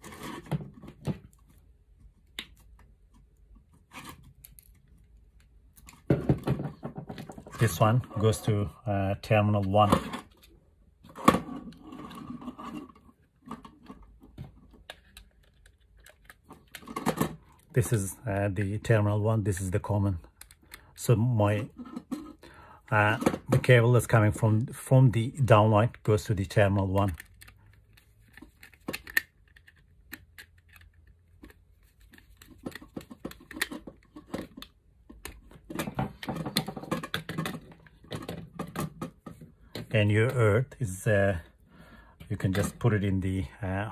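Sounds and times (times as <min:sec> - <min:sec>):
plastic rattling: 0:11.1 - 0:17.8, 0:26.8 - 0:40.0.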